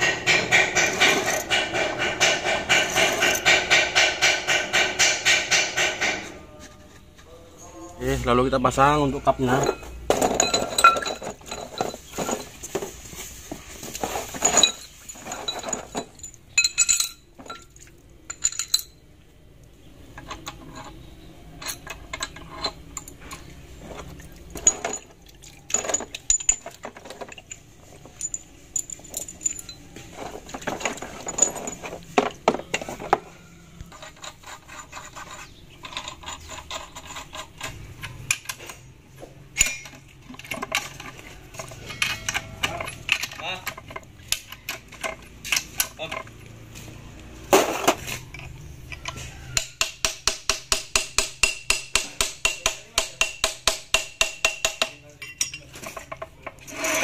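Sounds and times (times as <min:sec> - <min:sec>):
metallic clinks of steel parts: 0:00.0 - 0:03.8, 0:09.2 - 0:12.7, 0:14.0 - 0:19.0, 0:20.2 - 0:35.2, 0:39.5 - 0:46.4, 0:48.1 - 0:49.8, 0:54.4 - 0:57.0
wrench on bolts: 0:00.0 - 0:06.3, 0:20.1 - 0:23.6, 0:39.6 - 0:46.4.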